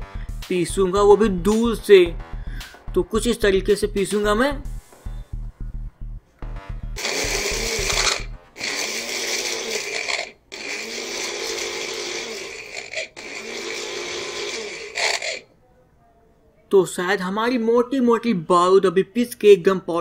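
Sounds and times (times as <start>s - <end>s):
thumping music beat: 0.0s - 8.6s
mixer grinder running: 7.0s - 15.4s.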